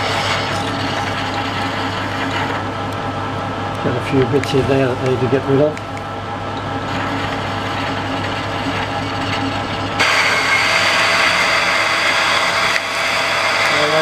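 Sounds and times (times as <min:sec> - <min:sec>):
metal lathe hum: 0:00.0 - 0:14.0
drill scraping into steel: 0:10.0 - 0:14.0.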